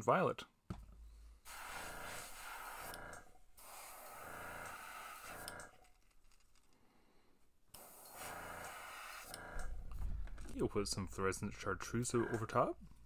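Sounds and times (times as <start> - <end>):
airbrush spraying hiss: 1.4 - 3.0, 3.6 - 5.5, 7.8 - 9.4.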